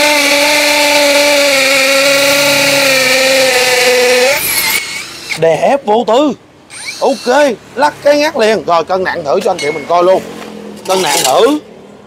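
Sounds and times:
hammer drill boring into concrete: 0:00.0 - 0:05.4, 0:06.7 - 0:07.5.

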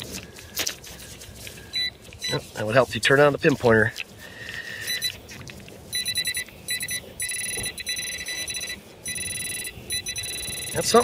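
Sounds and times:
metal detector pulsing high buzz: 0:05.9 - 0:11.0
metal detector short tone: 0:05.9 - 0:11.0.

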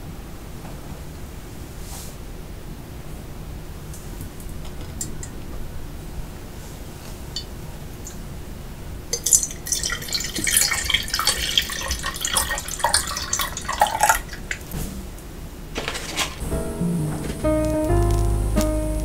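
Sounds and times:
milk splashing into a glass: 0:09.2 - 0:14.7.

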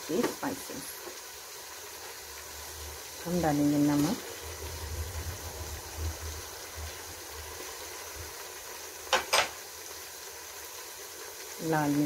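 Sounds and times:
sauce simmering and bubbling: 0:00.1 - 0:12.0
low rumble: 0:04.2 - 0:07.4.

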